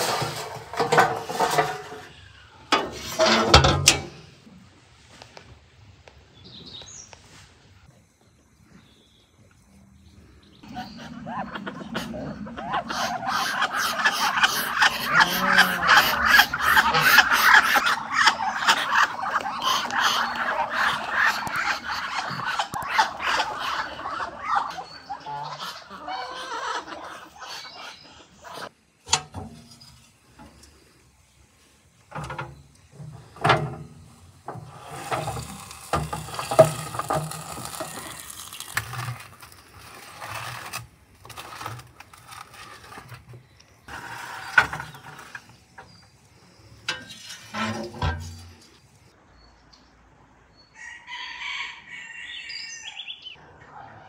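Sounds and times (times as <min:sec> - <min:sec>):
metal clanks and scrapes: 0:00.0 - 0:04.5, 0:29.1 - 0:30.9, 0:32.1 - 0:49.0
ducks calling: 0:10.6 - 0:28.7.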